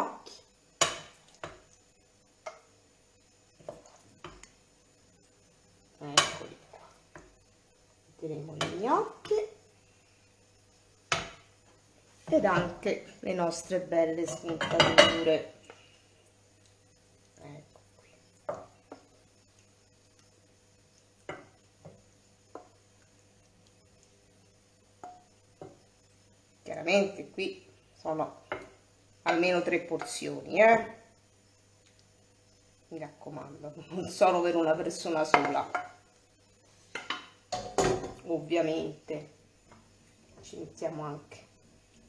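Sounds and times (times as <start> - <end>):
spoon knocking on frying pan and plate: 0.8 - 1.6, 11.1 - 11.5, 14.3 - 15.3, 21.2 - 22.8, 25.0 - 25.8, 35.3 - 36.0, 36.9 - 38.2
wooden spoon knocking frying pan: 11.1 - 11.4, 25.0 - 25.8, 35.3 - 36.0, 36.9 - 38.2.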